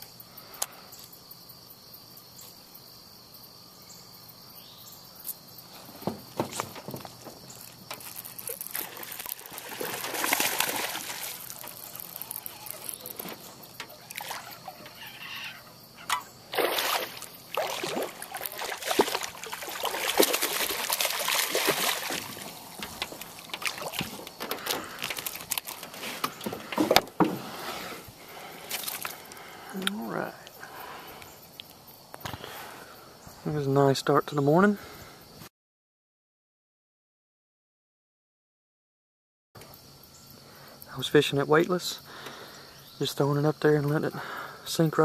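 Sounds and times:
water splashing and sloshing: 5.7 - 29.6
knocks and clatter in boat: 5.8 - 7.6, 17.9 - 27.5.

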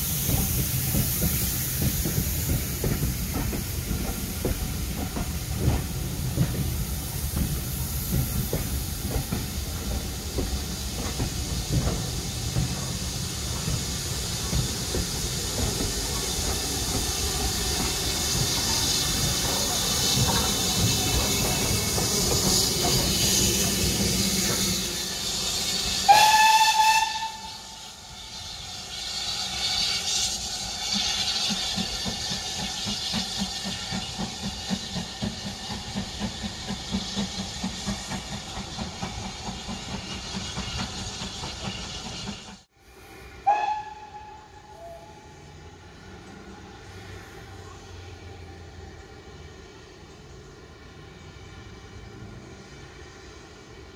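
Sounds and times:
steam locomotive exhaust beats: 0.0 - 50.4
steam hissing: 0.0 - 53.9
steam whistle blast: 25.8 - 30.4, 42.8 - 45.5.

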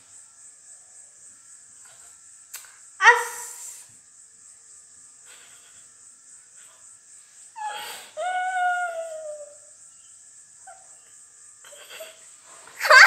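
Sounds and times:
high-pitched whimper: 7.6 - 9.6, 11.7 - 12.2.

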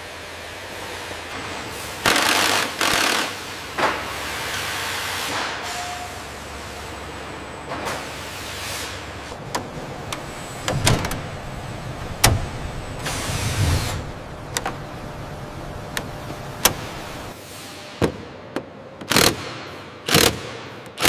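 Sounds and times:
steady background hum: 0.0 - 21.0
sharp clicks and metal knocks: 9.4 - 11.4, 12.2 - 12.5.

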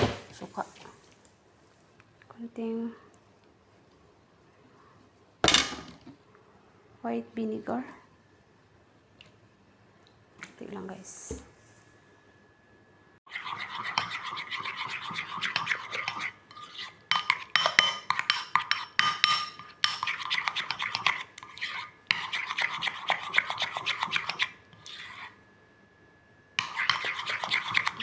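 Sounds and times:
spoon scraping a bowl: 13.3 - 25.4, 26.6 - 28.0.

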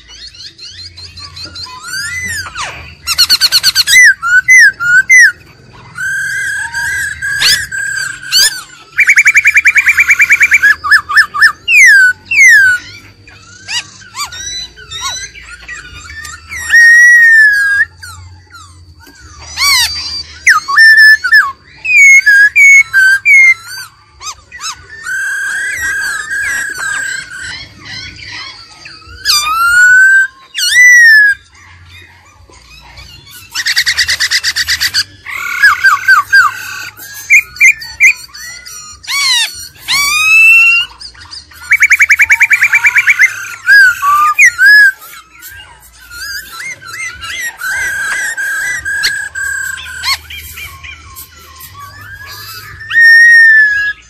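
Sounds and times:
bird singing whistled phrases: 0.0 - 54.0.

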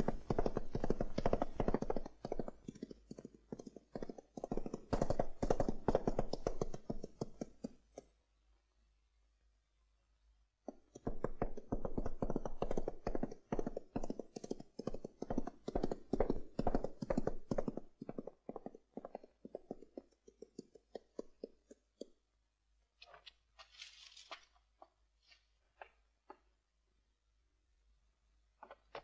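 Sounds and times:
horse hooves clopping on dirt: 0.0 - 7.9, 10.7 - 22.2
brief rustling: 23.0 - 26.0.

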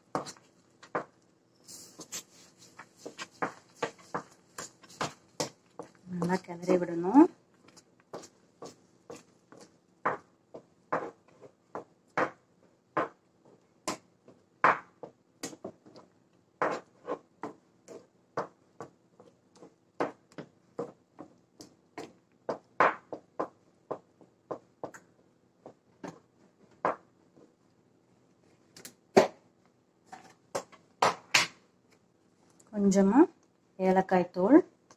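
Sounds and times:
wooden spatula scraping frying pan: 16.6 - 18.1.

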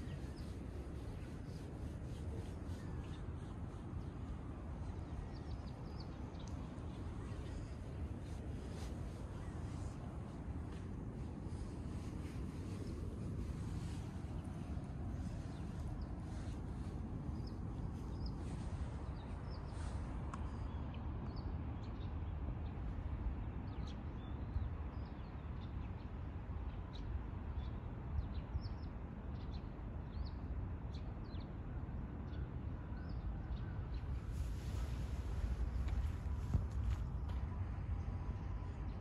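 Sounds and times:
small birds chirping: 0.0 - 21.5
steady low rumble: 0.0 - 24.7, 33.1 - 39.0.

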